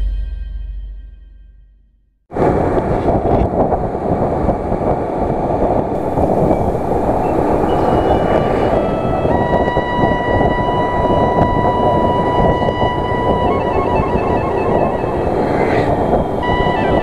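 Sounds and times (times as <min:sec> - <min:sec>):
road rumble: 0:02.3 - 0:17.0
wind buffeting microphone: 0:02.3 - 0:17.0
faint steady tone: 0:06.0 - 0:17.0
intro music: 0:06.0 - 0:17.0.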